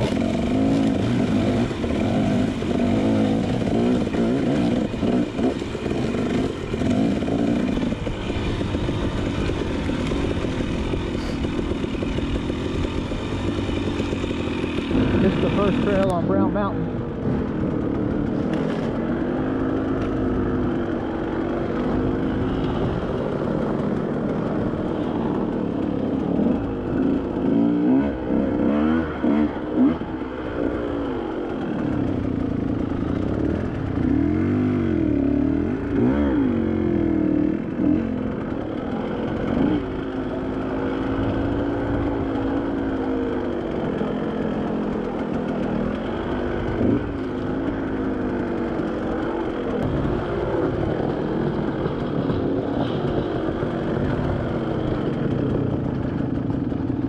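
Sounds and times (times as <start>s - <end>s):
off-road vehicle engine revving: 0.0s - 24.8s, 26.1s - 32.0s.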